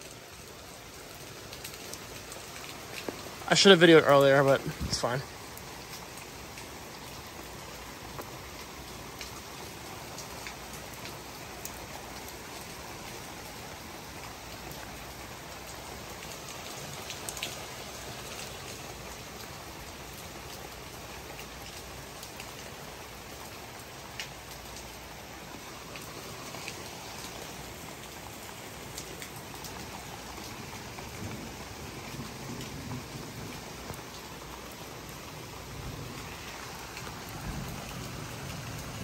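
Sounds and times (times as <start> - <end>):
steady rain falling: 0.0 - 39.0
sharp tap of raindrop: 2.6 - 3.3.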